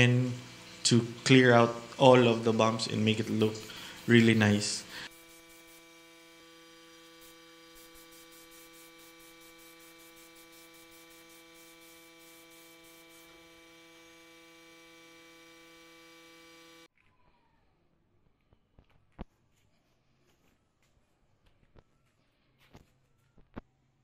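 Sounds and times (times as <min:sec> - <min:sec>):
electrical mains hum: 0:00.0 - 0:16.9.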